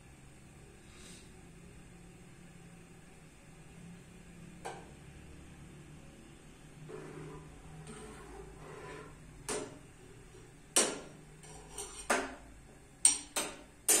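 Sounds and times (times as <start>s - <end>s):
spoon clinking against saucepan: 13.0s - 14.0s.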